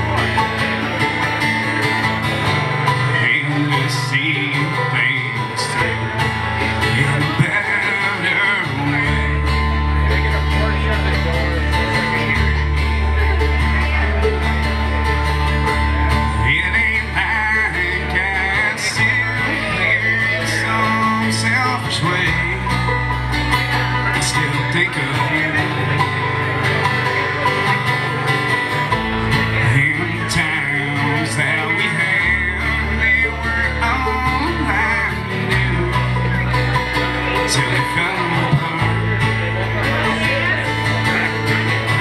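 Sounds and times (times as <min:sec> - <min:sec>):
low bass notes: 0:00.0 - 0:42.0
picked banjo: 0:00.0 - 0:42.0
strummed acoustic guitars: 0:00.0 - 0:42.0
man singing: 0:02.8 - 0:13.2, 0:16.2 - 0:27.9, 0:29.4 - 0:42.0.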